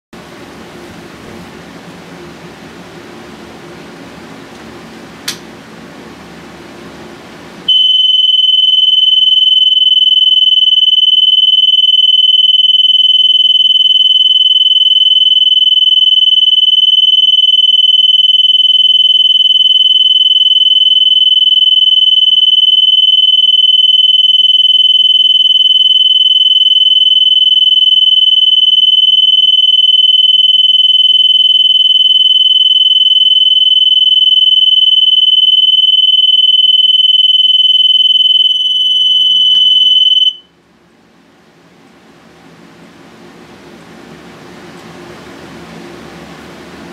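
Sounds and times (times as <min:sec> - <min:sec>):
smoke alarm tone: 0:07.7 - 0:40.5.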